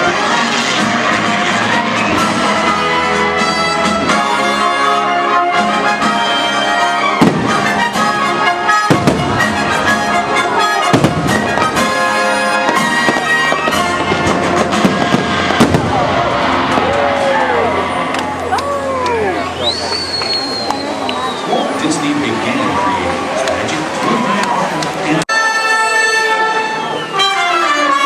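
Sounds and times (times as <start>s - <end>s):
music with held tones: 0.0s - 15.8s, 25.3s - 28.0s
fireworks bursting: 6.0s - 18.5s.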